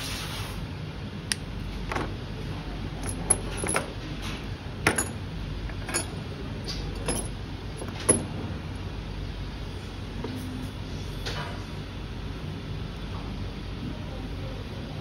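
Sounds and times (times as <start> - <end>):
steady low hum: 0.0 - 15.0
hand tools clicking and clinking: 3.0 - 4.0, 4.8 - 8.2.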